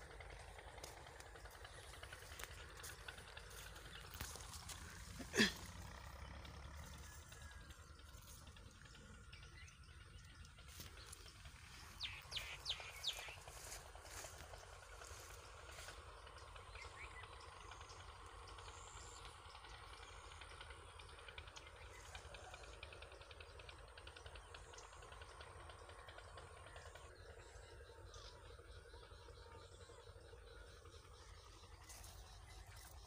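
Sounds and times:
bird chirps: 0:00.0 - 0:20.4.

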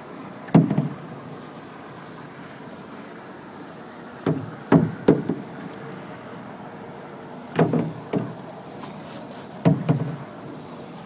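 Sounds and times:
paddle knocking against boat: 0:00.5 - 0:01.0, 0:04.2 - 0:05.6, 0:07.6 - 0:08.4, 0:09.6 - 0:10.3.

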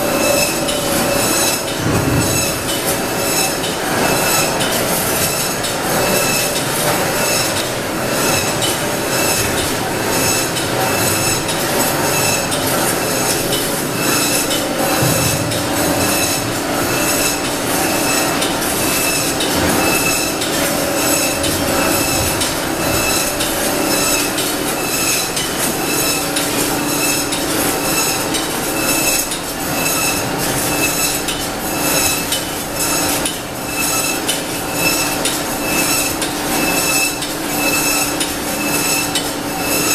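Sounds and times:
steady hum: 0:00.0 - 0:24.9
conveyor machinery metallic clatter: 0:00.0 - 0:39.9.

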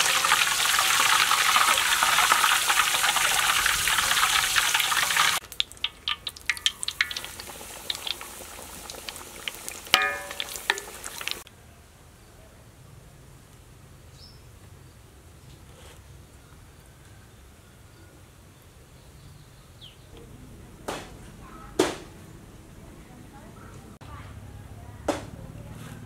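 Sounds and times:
food deep-frying in oil: 0:00.0 - 0:11.5
oil crackling and popping: 0:00.0 - 0:11.5.

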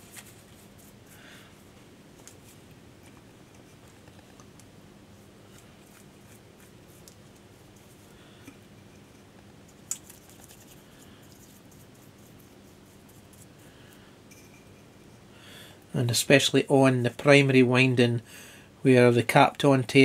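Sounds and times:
brush scratching: 0:00.0 - 0:04.3, 0:05.1 - 0:08.2, 0:08.9 - 0:13.7.

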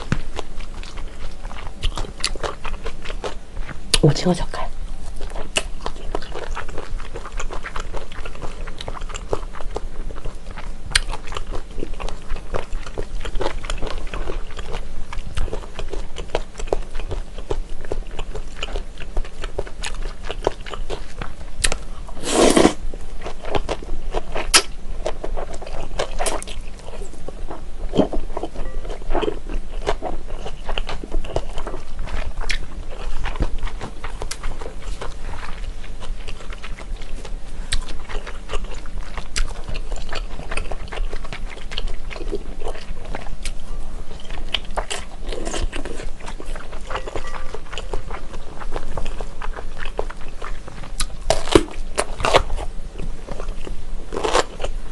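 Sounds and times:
wet chewing: 0:00.0 - 0:04.4, 0:05.0 - 0:54.8
noodle slurp: 0:22.2 - 0:22.8.

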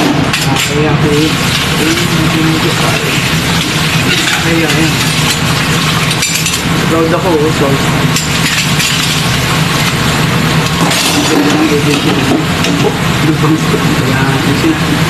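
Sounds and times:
utensils clinking: 0:00.0 - 0:06.7, 0:08.1 - 0:13.0
low machine hum: 0:00.0 - 0:15.0.

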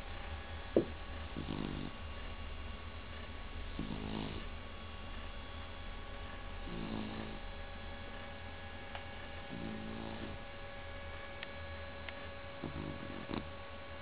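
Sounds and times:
faint steady hum: 0:00.0 - 0:14.0
dog snoring: 0:01.1 - 0:02.0, 0:03.1 - 0:04.5, 0:06.1 - 0:08.4, 0:09.2 - 0:10.5, 0:12.6 - 0:13.5.

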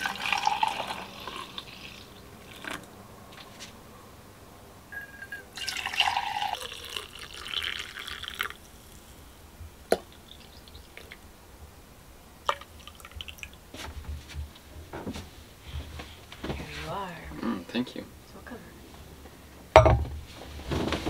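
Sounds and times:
liquid pouring into mugs: 0:00.0 - 0:02.9, 0:05.5 - 0:09.0, 0:12.4 - 0:13.6
sharp knocks on metal: 0:19.8 - 0:20.2.

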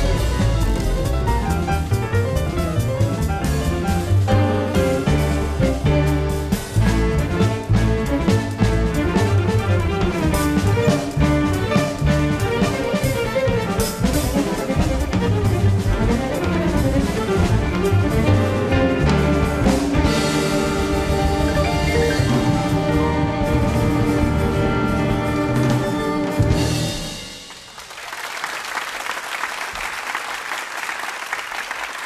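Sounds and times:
jazz fusion band playing: 0:00.0 - 0:27.7
audience applause: 0:21.0 - 0:32.0.

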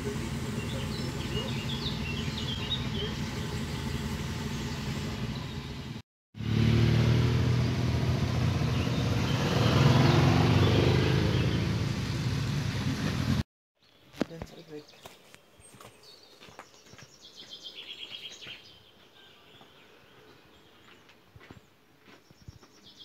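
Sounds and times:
bird chirps: 0:00.0 - 0:05.9, 0:13.8 - 0:21.1
motorcycle engines idling: 0:00.0 - 0:06.0
motorcycles pulling away: 0:00.0 - 0:13.5.

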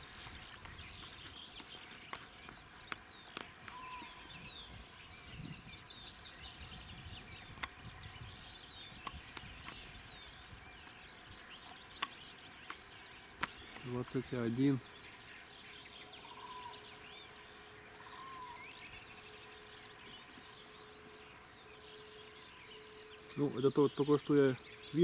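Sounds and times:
small birds chirping and trilling: 0:00.0 - 0:25.0
sharp brief clicks: 0:13.4 - 0:13.9.

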